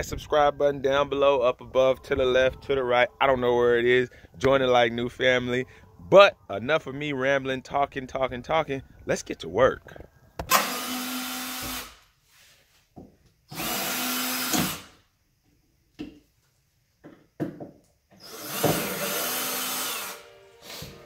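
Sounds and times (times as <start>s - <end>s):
cordless drill running: 10.5s - 12.0s, 13.5s - 15.0s, 18.2s - 20.8s.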